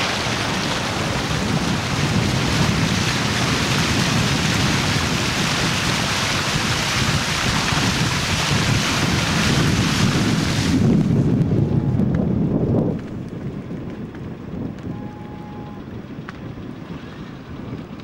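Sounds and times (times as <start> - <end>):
wind rushing hiss: 0.0 - 12.8
wind buffeting microphone: 0.0 - 18.0.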